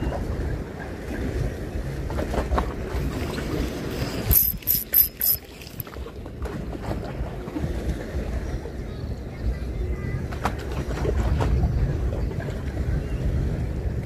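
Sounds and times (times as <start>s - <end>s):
wind buffeting microphone: 5.8s - 14.0s.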